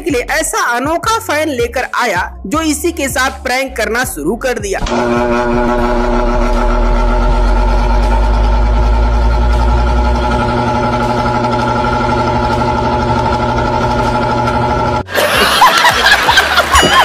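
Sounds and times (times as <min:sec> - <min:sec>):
loud droning hum: 0:04.8 - 0:15.1
man laughing: 0:15.1 - 0:17.0.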